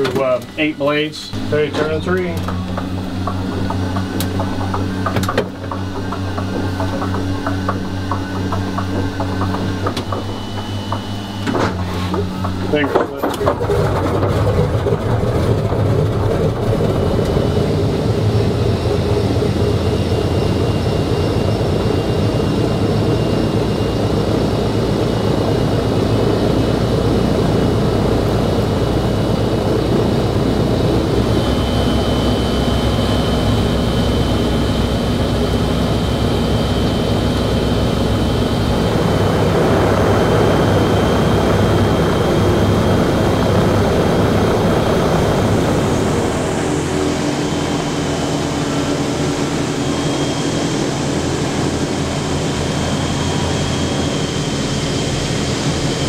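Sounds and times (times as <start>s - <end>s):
radial aircraft engines idling: 0.0s - 56.0s
engine starting: 13.0s - 16.4s.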